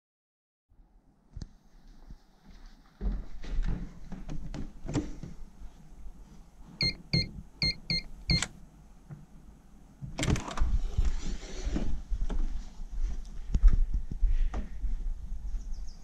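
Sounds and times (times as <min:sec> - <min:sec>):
electronic keypad beeps: 0:06.8 - 0:08.5.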